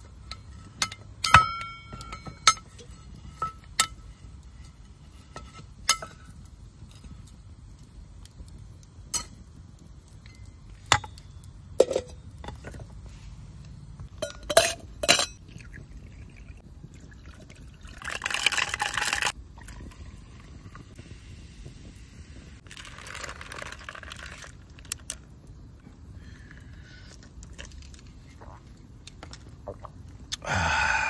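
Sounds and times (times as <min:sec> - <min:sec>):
ice clinking against glass: 0:14.1 - 0:15.8
liquid pouring into glass: 0:15.4 - 0:20.5.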